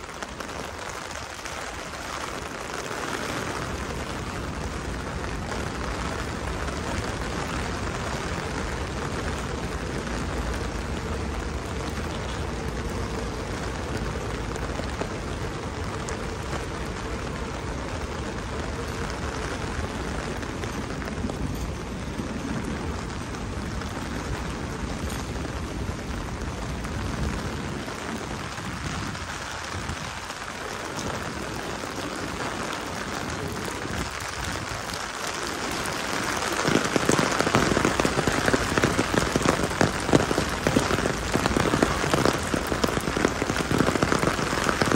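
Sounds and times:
rain hissing on pavement: 0.0 - 44.9.

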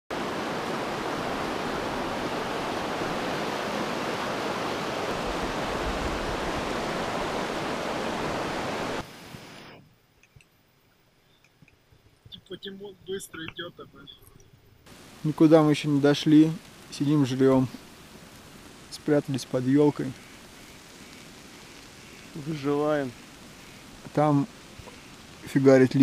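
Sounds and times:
river rushing over rapids: 0.1 - 9.7, 14.9 - 26.0.

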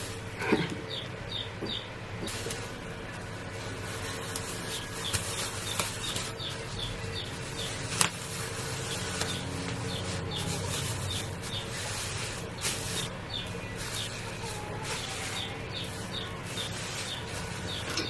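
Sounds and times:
plastic shower cap crinkling: 2.3 - 6.6.

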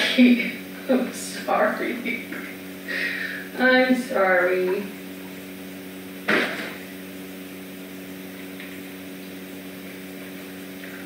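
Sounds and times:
electrical machine hum: 0.0 - 11.0.

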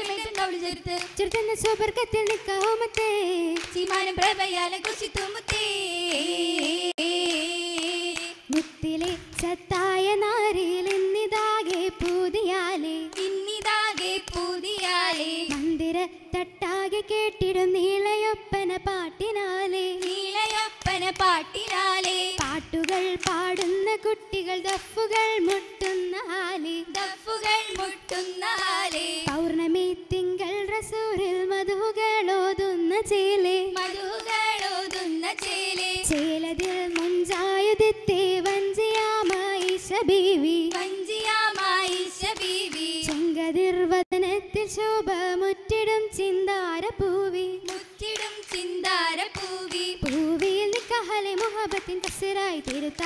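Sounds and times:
sharp hand claps: 0.0 - 9.6, 10.8 - 12.3, 13.1 - 15.8, 20.0 - 23.9, 24.6 - 26.2, 26.9 - 29.4, 33.8 - 37.6, 38.4 - 40.0, 40.7 - 43.3, 47.7 - 53.0
girls singing together: 0.0 - 53.0.

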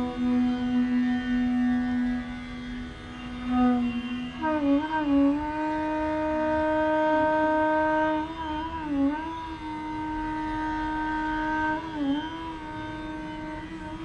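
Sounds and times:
bamboo flute playing: 0.0 - 14.0.

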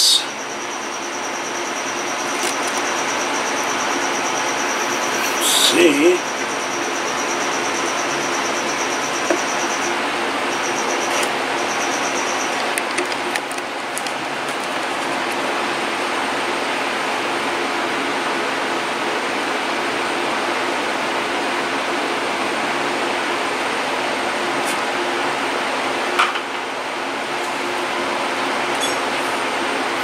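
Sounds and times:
high pulsed chirping: 0.0 - 12.8.

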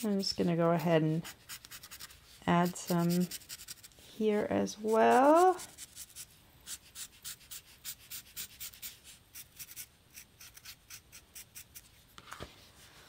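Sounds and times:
marker rubbing across felt: 0.0 - 4.0.

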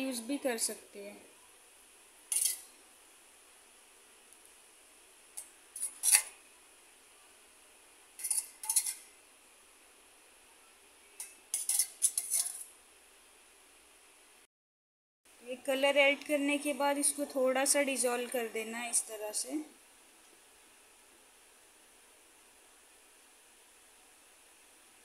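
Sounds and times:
steel spoon clinking bowls: 8.2 - 9.0, 11.2 - 12.6.

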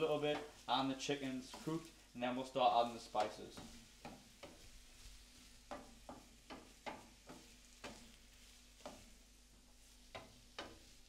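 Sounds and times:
food sizzling: 0.0 - 11.0
wooden spatula knocking in pan: 0.0 - 11.0.

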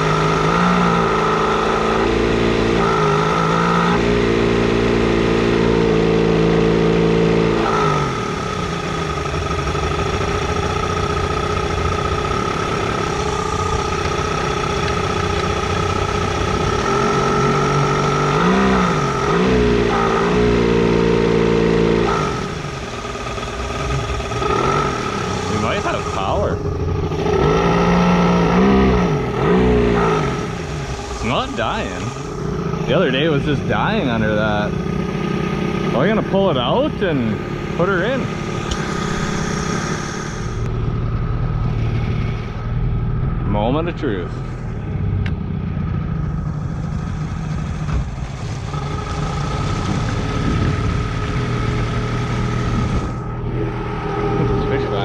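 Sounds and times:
outboard engine running: 0.0 - 55.0
propeller churning water: 7.7 - 42.4.

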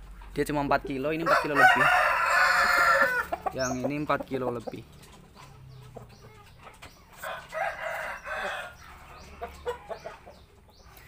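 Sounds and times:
chicken clucking: 0.1 - 11.0
rooster crowing: 1.2 - 3.4, 7.2 - 8.9.

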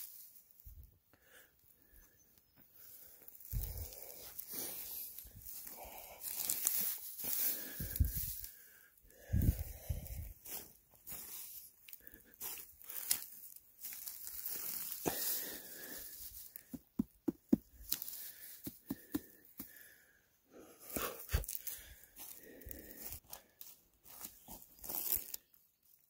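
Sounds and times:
dry pine needles rustling: 0.0 - 17.0, 17.7 - 19.9, 21.4 - 26.0
fingers tapping mushroom cap: 16.7 - 17.8.

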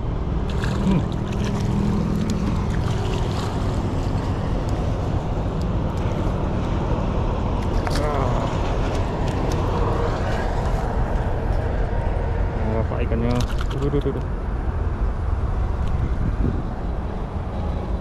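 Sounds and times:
steady low rumbling: 0.0 - 18.0
fish splashing at water surface: 0.4 - 4.5, 13.3 - 14.1.

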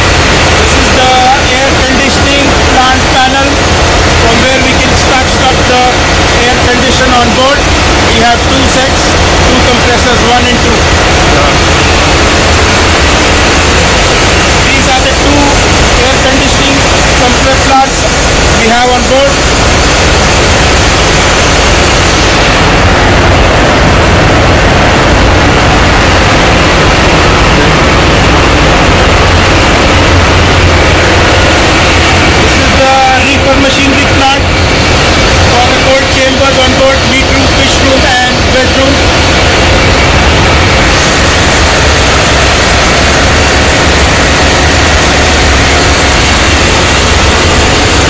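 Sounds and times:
low hum: 0.0 - 48.0
machinery roaring: 0.0 - 48.0.

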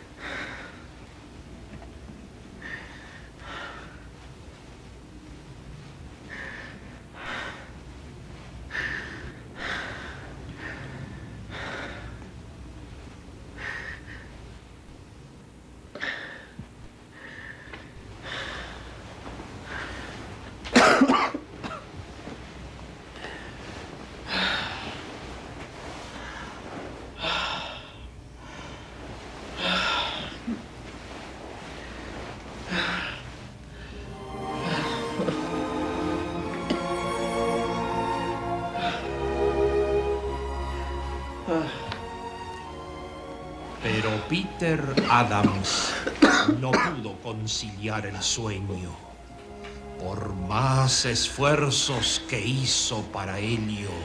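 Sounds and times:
low steady hum: 0.0 - 54.0
person breathing heavily: 0.1 - 1.1, 2.5 - 4.3, 6.2 - 8.0, 8.6 - 12.4, 13.5 - 14.6, 15.9 - 20.5, 23.0 - 36.4, 38.7 - 39.5, 41.4 - 42.3.

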